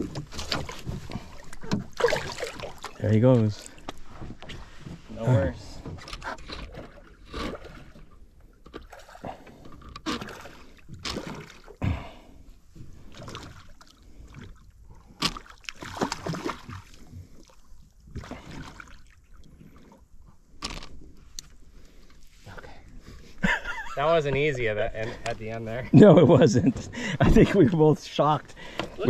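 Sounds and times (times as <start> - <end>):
fish thrashing and splashing: 0.0 - 3.0, 10.1 - 11.8, 13.0 - 19.9.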